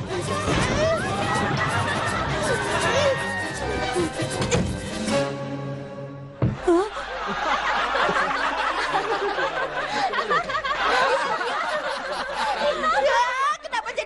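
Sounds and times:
crowd laughing: 0:00.0 - 0:04.6, 0:06.6 - 0:14.0
sharp thump: 0:06.4 - 0:06.6.

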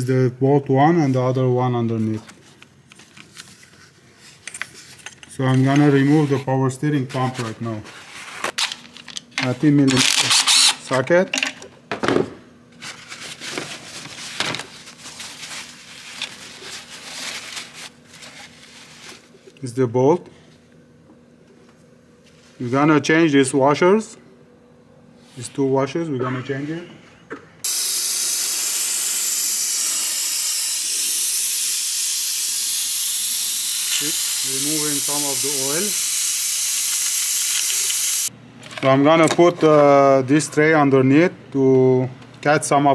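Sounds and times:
paper towel rustling: 0:12.8 - 0:19.5
siphoning tool hissing: 0:27.6 - 0:38.3.

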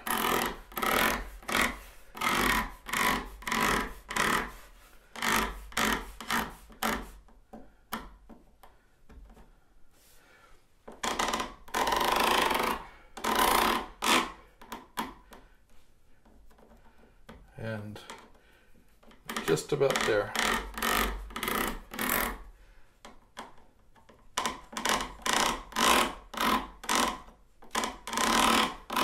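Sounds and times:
tweezers scraping plastic ties: 0:19.0 - 0:22.4.

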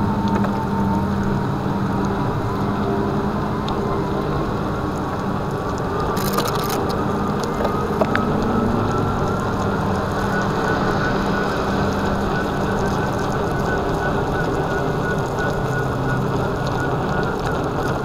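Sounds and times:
faint motor whine: 0:00.0 - 0:18.0
wind on microphone: 0:00.0 - 0:18.0
tyre hissing on wet road: 0:06.8 - 0:16.3.

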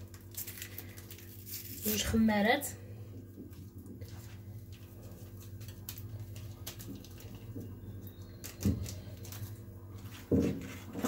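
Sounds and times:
paper sachet rustling: 0:00.0 - 0:02.2, 0:04.1 - 0:07.7
steady low hum: 0:00.0 - 0:11.0.

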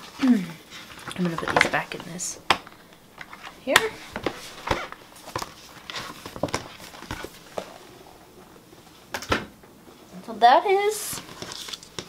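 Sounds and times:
paper rustling: 0:00.7 - 0:07.8, 0:11.1 - 0:12.0.

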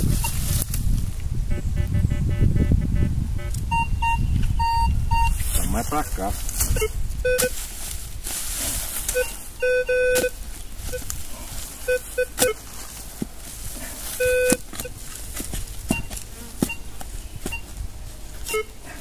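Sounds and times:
metal detector low beeps: 0:00.0 - 0:00.5, 0:01.5 - 0:05.4, 0:06.6 - 0:07.6, 0:09.0 - 0:11.2, 0:11.8 - 0:12.7, 0:14.1 - 0:15.0, 0:15.9 - 0:17.8, 0:18.4 - 0:18.8.

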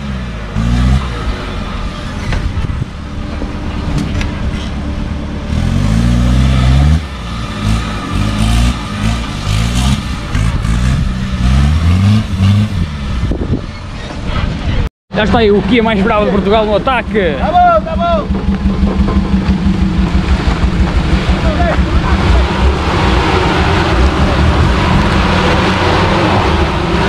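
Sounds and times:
jeep engine revving hard: 0:00.0 - 0:02.3, 0:05.5 - 0:13.4, 0:17.9 - 0:27.0.

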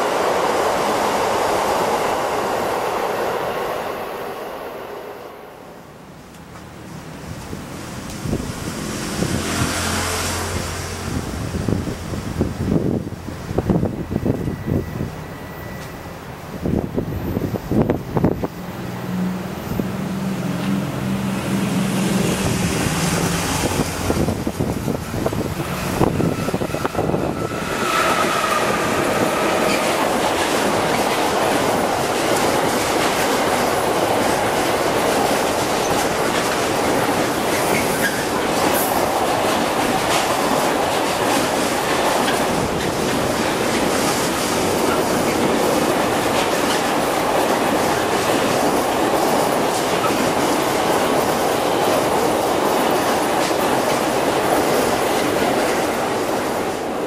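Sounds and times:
freight train rumbling past: 0:00.0 - 0:57.0
wheels clacking over rail joints: 0:20.5 - 0:56.8.

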